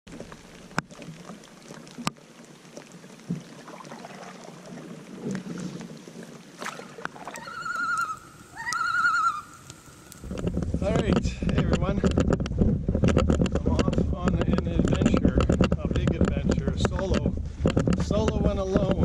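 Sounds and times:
paddle knocking canoe: 0:00.1 - 0:19.0
water lapping at hull: 0:00.1 - 0:19.0
paddle strokes swishing: 0:03.3 - 0:10.8.

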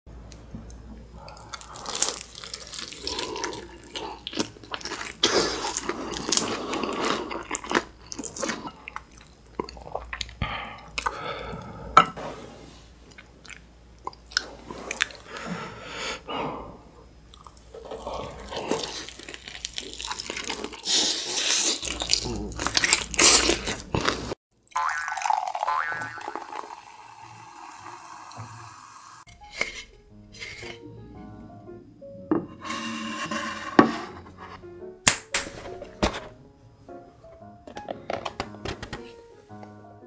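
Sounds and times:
person chewing and slurping: 0:01.1 - 0:11.2, 0:13.1 - 0:15.3, 0:17.4 - 0:24.4.

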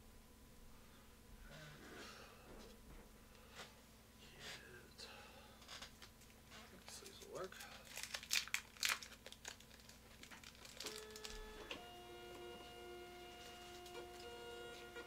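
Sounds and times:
crinkling rustle: 0:05.6 - 0:11.8.

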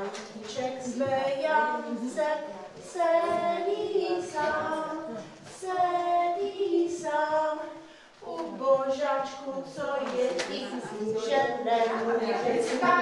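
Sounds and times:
woman and children singing: 0:00.0 - 0:13.0.

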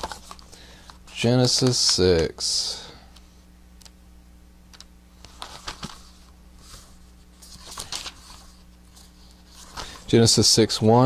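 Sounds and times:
paper rustling: 0:00.0 - 0:00.5, 0:05.2 - 0:10.1
low steady hum: 0:00.0 - 0:11.0.

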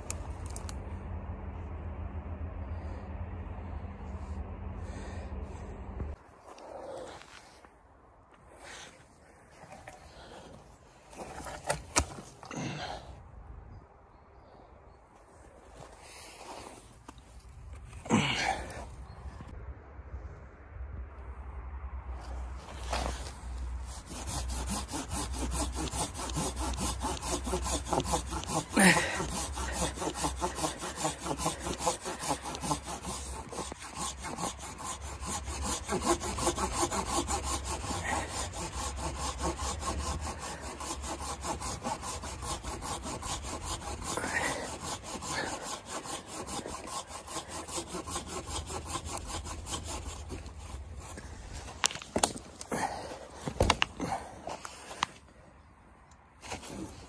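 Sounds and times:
hand saw cutting log: 0:11.1 - 0:12.8, 0:22.7 - 0:55.2, 0:56.4 - 0:57.0.

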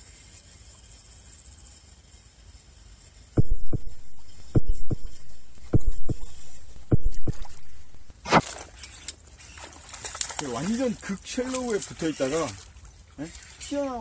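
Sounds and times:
sharp heavy thumps: 0:03.4 - 0:08.5.

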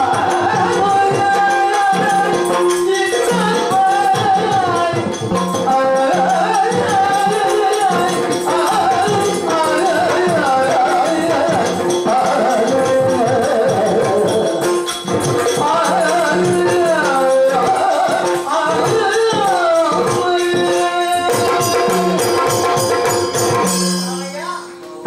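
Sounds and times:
man singing with gliding pitch: 0:00.0 - 0:14.9, 0:15.5 - 0:22.5.

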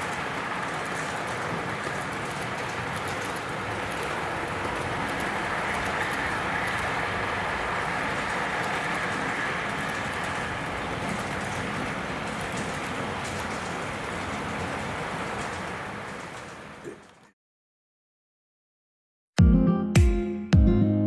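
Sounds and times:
model train wheels rattling: 0:00.0 - 0:16.8.

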